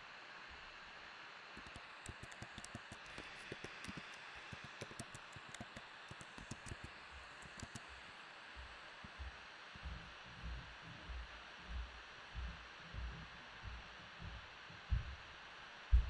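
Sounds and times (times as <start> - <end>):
faint steady hiss: 0.0 - 16.0
keyboard key clicks: 1.6 - 7.9.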